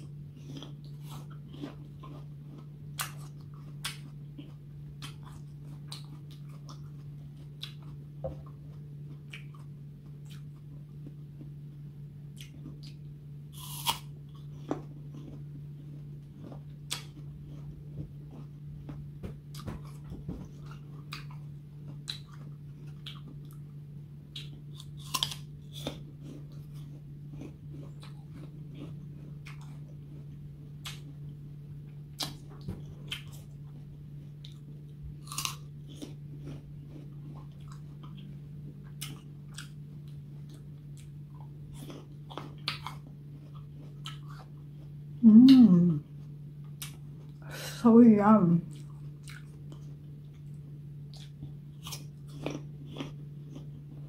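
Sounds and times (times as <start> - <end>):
apple being bitten and chewed: 0.0 - 31.3, 32.1 - 47.4, 48.7 - 54.0
steady low hum: 0.0 - 54.0.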